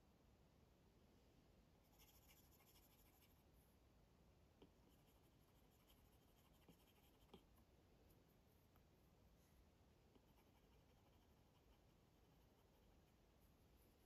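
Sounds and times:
stylus scratching on tablet screen: 0:01.9 - 0:03.4, 0:04.6 - 0:07.5, 0:10.1 - 0:13.2.

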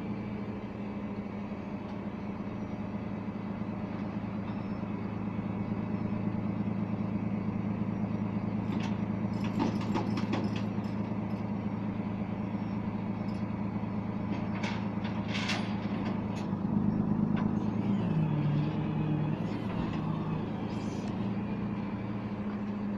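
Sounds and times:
truck engine running: 0:00.0 - 0:22.9
metallic clanks and knocks: 0:08.7 - 0:11.5, 0:14.3 - 0:16.6.

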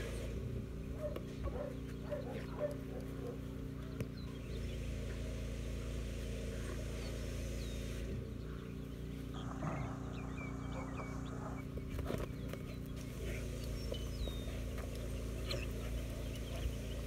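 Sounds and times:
steady low drone: 0:00.0 - 0:17.0
puppy growling: 0:09.3 - 0:14.4.

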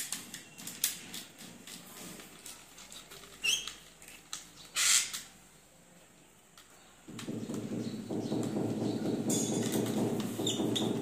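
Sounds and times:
screwdriver clicking and scraping: 0:04.8 - 0:05.3.

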